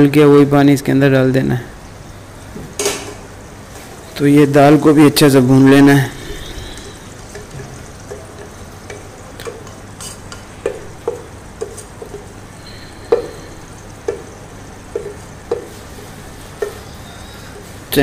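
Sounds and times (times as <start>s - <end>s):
low sizzle: 0.0s - 18.0s
spatula knocking metal bowl: 6.8s - 12.3s, 13.0s - 15.8s, 16.6s - 16.9s.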